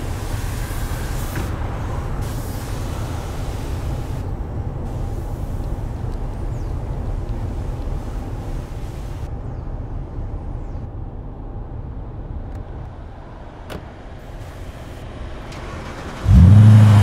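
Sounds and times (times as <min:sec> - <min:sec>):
broad hiss: 0:00.0 - 0:06.1, 0:07.5 - 0:09.3
low vehicle rumble: 0:00.0 - 0:17.0.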